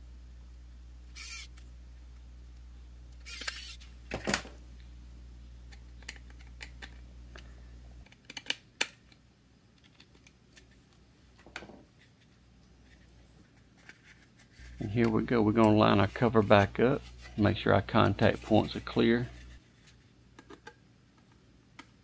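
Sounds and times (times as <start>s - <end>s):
steady low hum: 0.0s - 8.2s, 9.0s - 22.0s
screwdriver clicks and scrapes: 3.2s - 3.9s.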